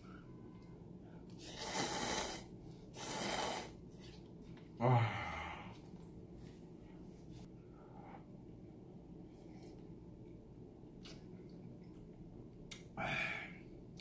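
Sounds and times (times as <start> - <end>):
person slurping noodles: 1.4 - 3.8
person exhaling ah: 13.0 - 13.6.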